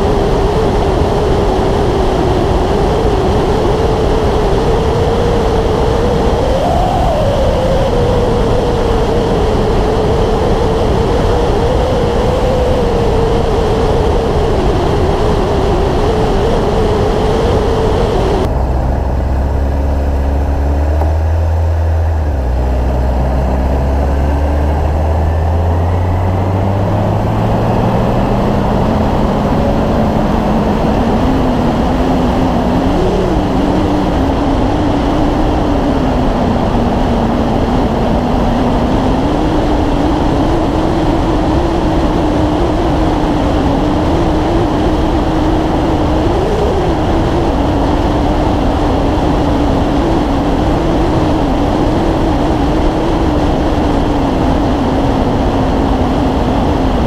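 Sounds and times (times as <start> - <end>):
motorcycle engine accelerating: 0.0 - 57.0
wind rushing over microphone: 0.0 - 57.0.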